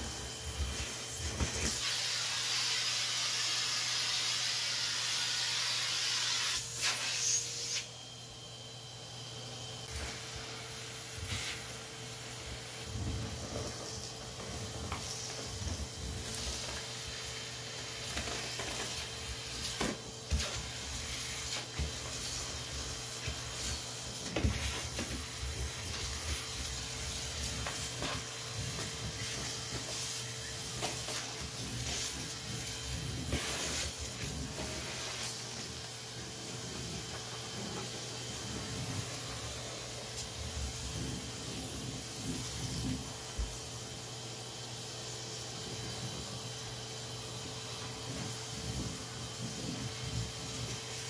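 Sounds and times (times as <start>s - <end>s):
vacuum cleaner running: 0.0s - 51.0s.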